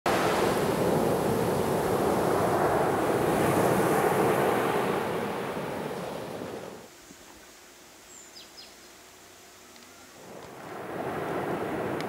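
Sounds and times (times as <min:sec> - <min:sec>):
surf washing up pebble beach: 0:00.1 - 0:06.8, 0:10.2 - 0:12.0.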